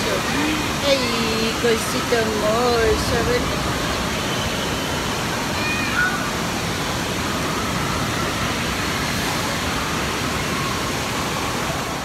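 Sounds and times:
distant high-pitched voices: 0.0s - 6.6s
echoing crowd noise: 0.0s - 12.0s
running water: 0.0s - 12.0s.

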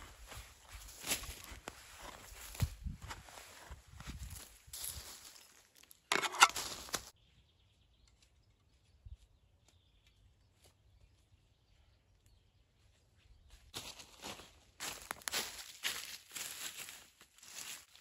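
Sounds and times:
spade digging into soil and leaves: 6.1s - 7.1s.

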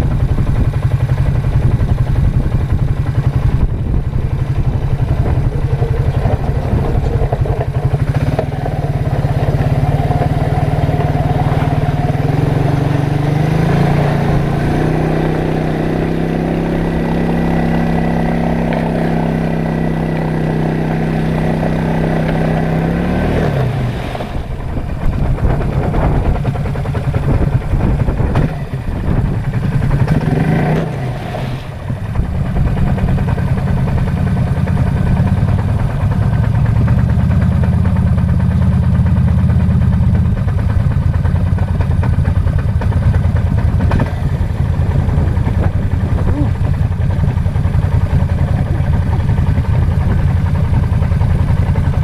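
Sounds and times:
atv engine running: 0.0s - 52.0s.

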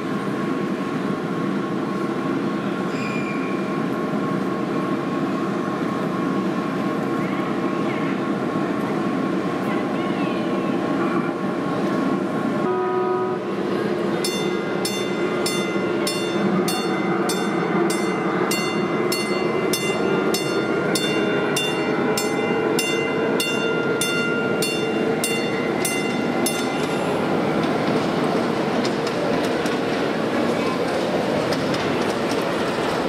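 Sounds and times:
steady background noise: 0.0s - 12.7s, 13.4s - 33.0s
locomotive horn blast: 12.6s - 13.5s
locomotive bell ringing: 14.2s - 26.9s.

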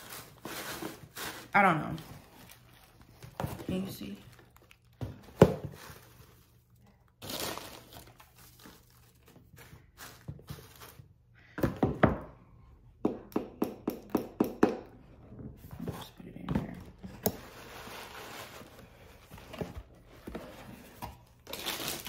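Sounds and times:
paper shred crinkling: 0.0s - 5.0s, 5.7s - 11.0s, 21.3s - 22.0s.

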